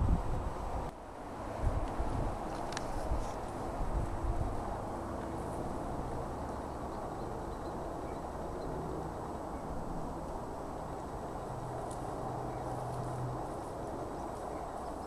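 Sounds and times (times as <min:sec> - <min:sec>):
low rumbling background noise: 0:00.0 - 0:15.0.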